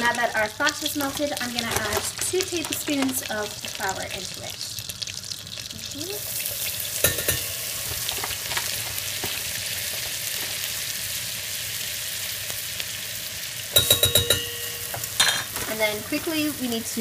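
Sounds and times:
roux sizzling in saucepan: 0.0 - 17.0
metal spoon tapping pan: 7.0 - 7.6, 13.7 - 15.5
ringing metallic clinks: 13.8 - 15.4.

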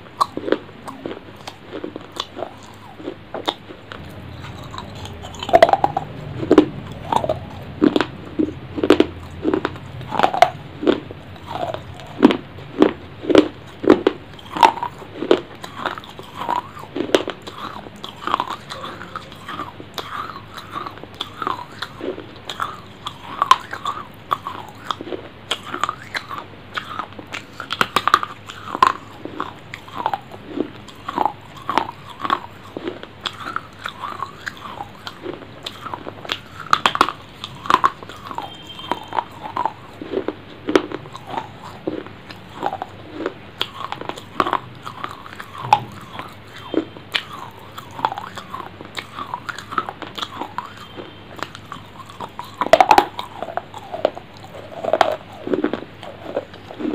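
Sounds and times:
person chewing food: 0.0 - 56.9
wet mouth clicks and smacks: 29.7 - 39.5, 43.6 - 55.8.

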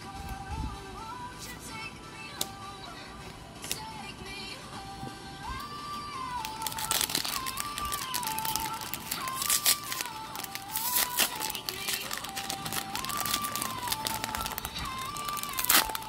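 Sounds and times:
foil wrapper crinkling and tearing: 6.3 - 16.0.

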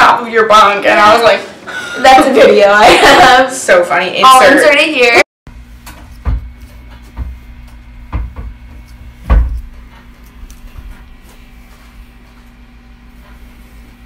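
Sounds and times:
steady low hum: 5.5 - 14.0
dull thumps: 5.9 - 9.9.

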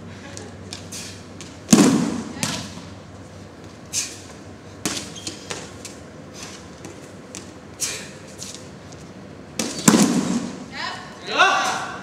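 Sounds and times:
feet and staff tapping on mats: 3.6 - 10.6.

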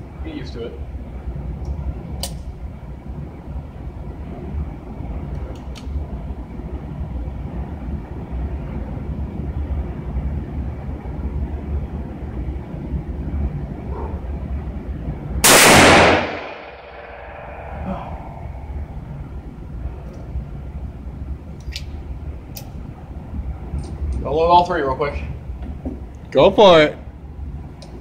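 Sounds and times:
low rumble: 0.9 - 24.2
revolver gunshot: 15.4 - 18.6.

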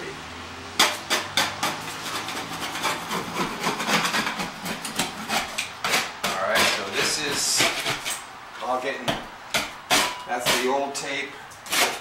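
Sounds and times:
blade scraping drywall: 0.8 - 8.2, 9.6 - 12.0.

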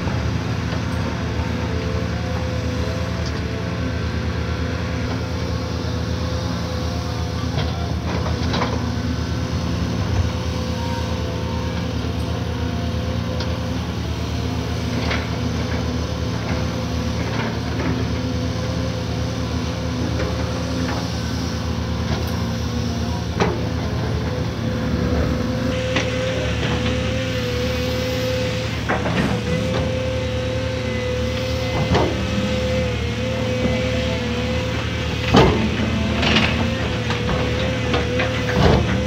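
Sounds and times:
excavator diesel engine running: 0.0 - 39.0.

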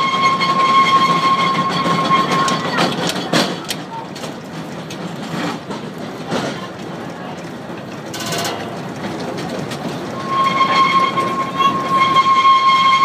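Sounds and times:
electric train rolling: 0.0 - 13.0
train wheels clacking over points: 0.0 - 13.0.

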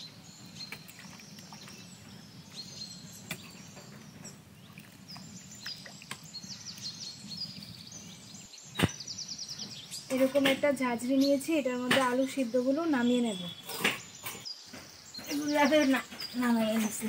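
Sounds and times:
birds chirping: 0.0 - 17.0
sharp knock: 8.8 - 9.0.

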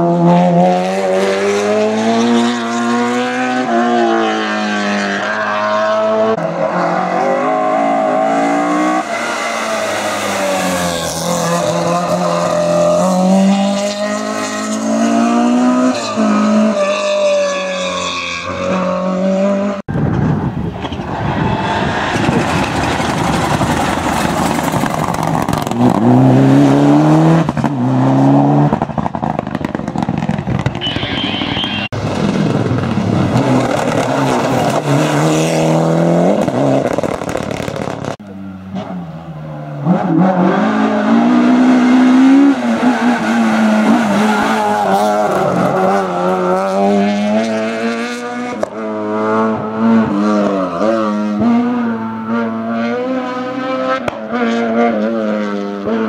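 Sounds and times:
race car engine revving: 39.8 - 56.0.

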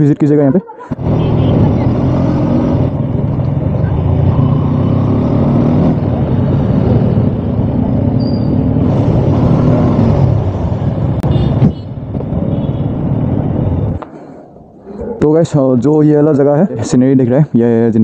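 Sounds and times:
traffic: 0.0 - 18.0
motorcycle engine running: 1.0 - 11.2.

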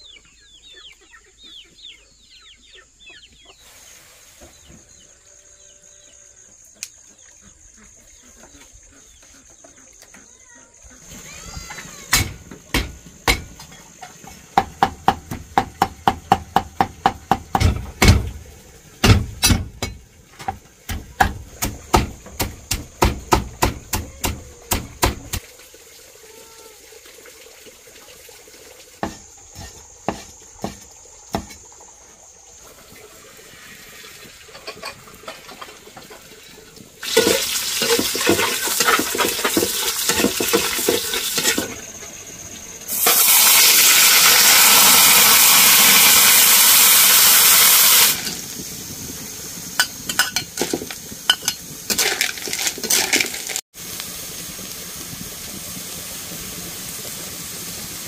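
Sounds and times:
shallots sizzling in hot oil: 11.0 - 26.2, 27.2 - 58.0
cleaver chopping on wooden board: 20.9 - 25.4.

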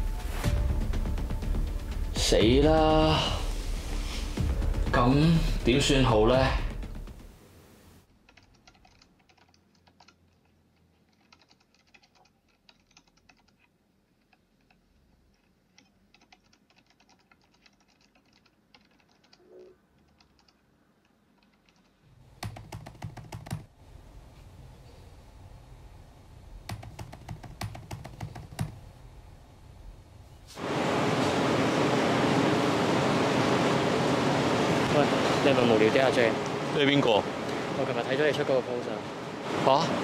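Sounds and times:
low background hum: 0.0 - 40.0
laptop keyboard typing: 8.2 - 23.7, 26.7 - 28.8.

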